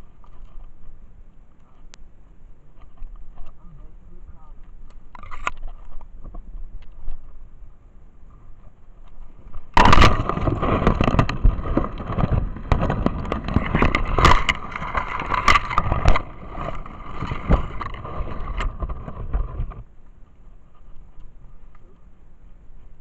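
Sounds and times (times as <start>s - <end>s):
brush rustling against camera: 8.3s - 23.0s.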